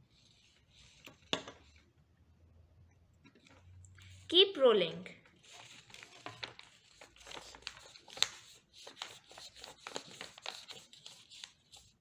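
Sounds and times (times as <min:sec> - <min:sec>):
paper rustling and crinkling: 0:05.3 - 0:12.0.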